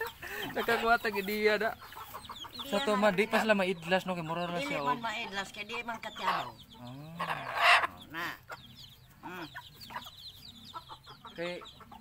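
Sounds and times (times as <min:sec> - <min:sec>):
chickens clucking: 0:00.0 - 0:12.0
chicken squawk: 0:05.9 - 0:12.0.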